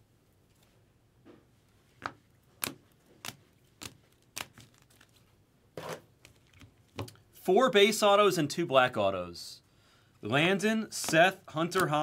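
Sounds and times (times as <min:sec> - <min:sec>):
plastic card sleeves rustling: 0:02.0 - 0:05.4, 0:10.2 - 0:12.0
plastic card sleeves clicking: 0:11.0 - 0:12.0.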